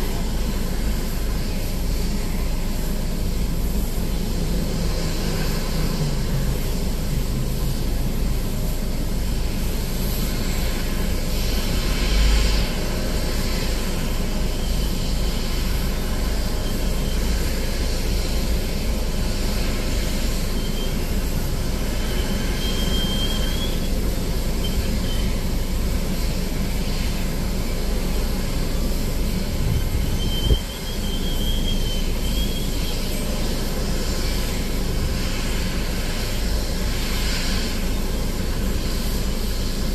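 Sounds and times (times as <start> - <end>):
aircraft engines rumbling: 0.0 - 39.9
faint high squeal: 20.1 - 25.7, 28.1 - 34.6.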